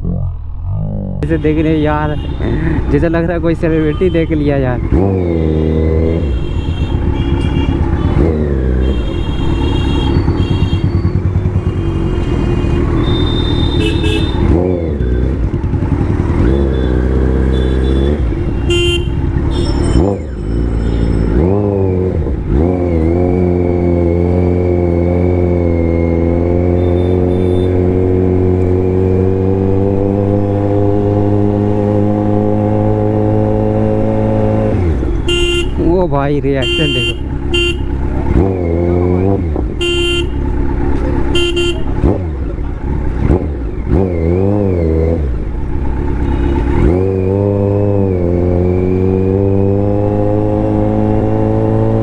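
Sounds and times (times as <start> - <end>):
motorcycle engine revving: 0.0 - 52.0
vehicle horns honking: 1.2 - 2.9, 3.7 - 4.5, 6.1 - 14.6, 16.4 - 21.5, 26.7 - 27.8, 35.0 - 35.9, 36.5 - 38.1, 39.8 - 40.6, 41.2 - 42.2, 46.2 - 46.9.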